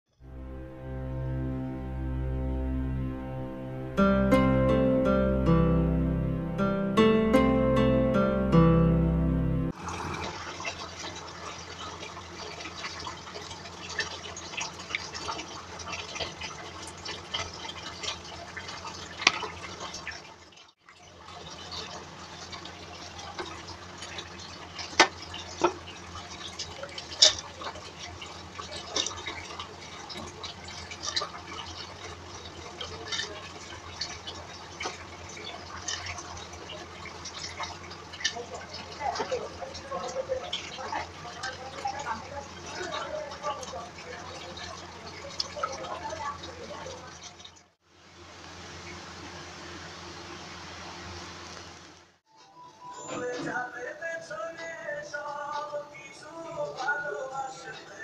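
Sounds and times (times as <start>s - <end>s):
water sloshing and splashing: 9.7s - 52.2s.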